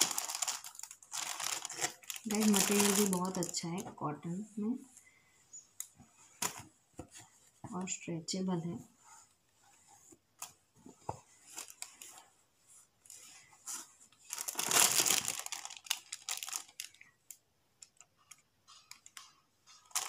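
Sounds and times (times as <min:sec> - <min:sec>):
plastic packaging crinkling: 0:00.0 - 0:03.9, 0:11.5 - 0:12.2, 0:13.7 - 0:20.0
cloth rustling: 0:00.0 - 0:17.2.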